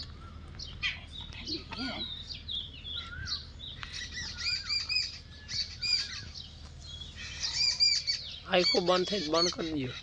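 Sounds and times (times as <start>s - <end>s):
small birds chirping: 0.0s - 10.0s.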